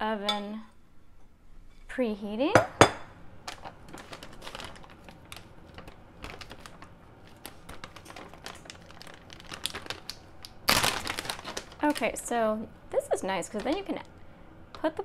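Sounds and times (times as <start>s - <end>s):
plastic bag crinkling: 3.4s - 14.1s.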